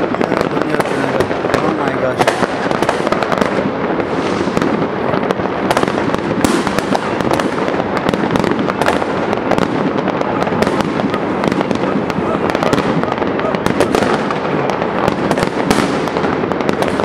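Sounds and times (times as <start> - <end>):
fireworks bangs and crackles: 0.0 - 17.0.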